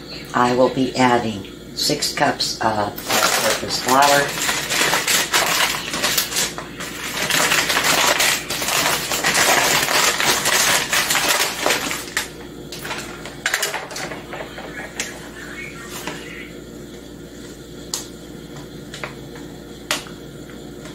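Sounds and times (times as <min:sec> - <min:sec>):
flour bag rustling and crinkling: 0:03.0 - 0:13.2.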